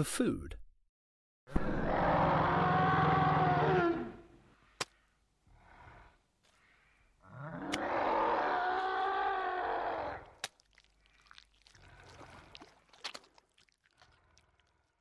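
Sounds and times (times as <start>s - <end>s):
dinosaur roar: 1.5s - 4.4s, 7.2s - 10.4s.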